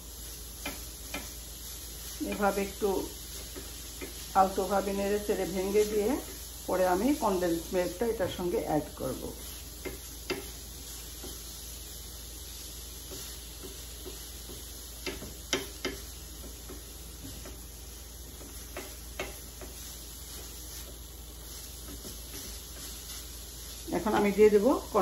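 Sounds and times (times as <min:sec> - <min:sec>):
spatula stirring in frying pan: 0:00.0 - 0:25.0
steady low hiss: 0:00.0 - 0:25.0
spatula tapping pan: 0:00.6 - 0:04.8, 0:09.4 - 0:11.6, 0:12.7 - 0:24.6.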